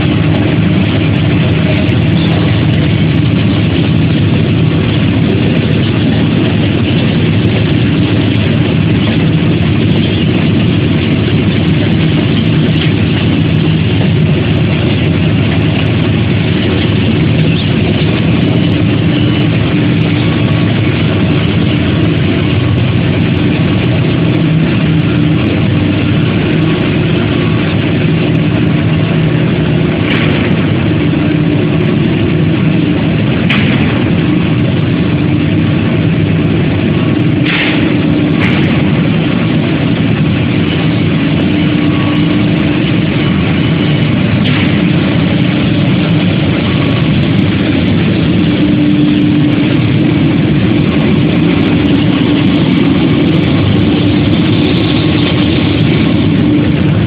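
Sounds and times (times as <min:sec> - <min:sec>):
production line machinery hum: 0:00.0 - 0:57.0.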